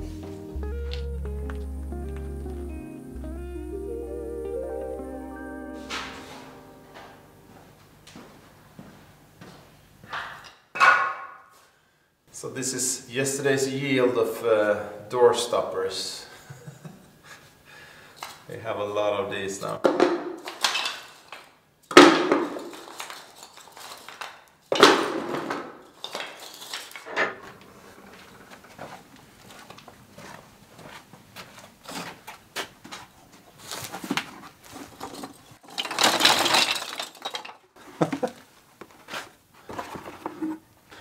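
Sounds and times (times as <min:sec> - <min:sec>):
hard objects knocking and clattering: 0:34.8 - 0:38.4.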